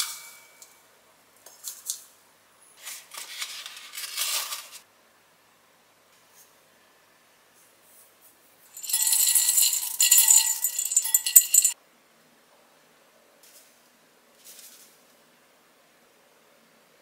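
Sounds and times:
chocolate chips clattering into glass bowl: 8.8 - 11.8.

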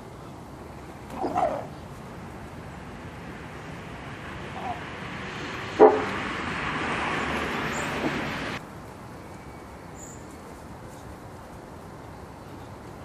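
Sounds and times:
steady low rumble: 0.0 - 8.6.

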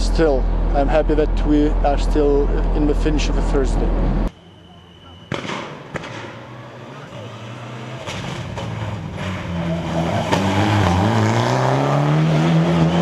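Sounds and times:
rally car engine revving: 6.4 - 13.0.

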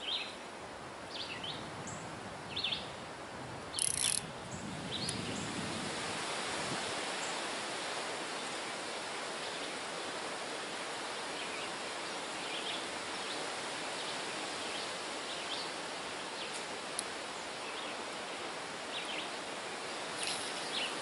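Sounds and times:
wind: 0.0 - 21.0
river water flowing: 2.7 - 4.4, 5.1 - 21.0
sharp rustle: 3.8 - 4.3, 20.1 - 21.0.

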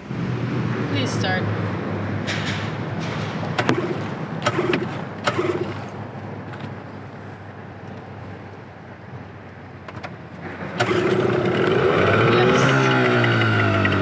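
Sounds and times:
outboard motor pull-start rasps: 3.6 - 6.0, 10.7 - 14.0.

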